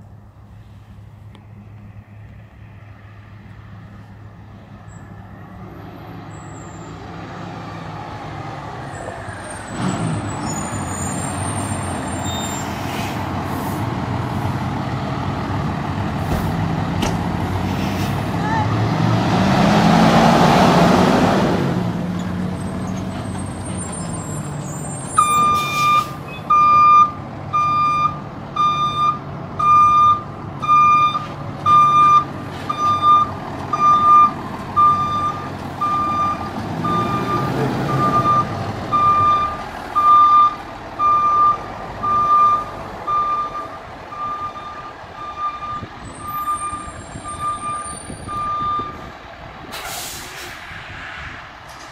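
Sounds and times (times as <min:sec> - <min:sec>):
air brakes hissing: 0:10.6 - 0:13.9, 0:49.7 - 0:50.7
back-up alarm beeping: 0:25.2 - 0:49.0.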